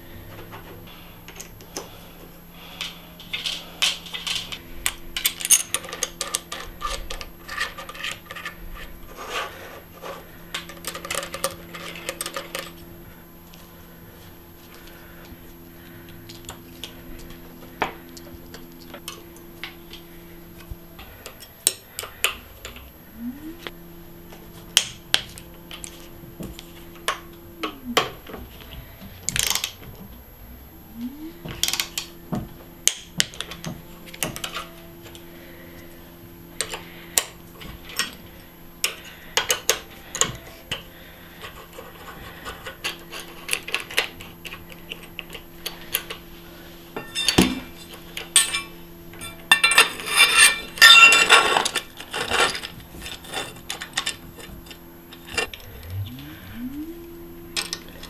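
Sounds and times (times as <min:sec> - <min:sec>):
metal bicycle parts clinking: 0:03.3 - 0:08.6, 0:47.0 - 0:55.5
low hum winding down and up: 0:22.1 - 0:39.3, 0:54.3 - 0:58.0.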